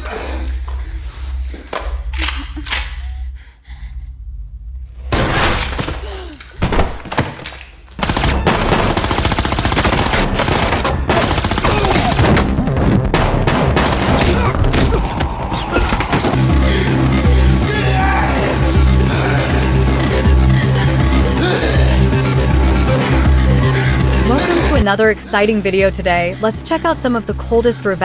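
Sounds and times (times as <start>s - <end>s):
rapid gunfire: 8.0s - 12.4s, 13.1s - 14.5s
gunshots: 8.0s - 15.0s.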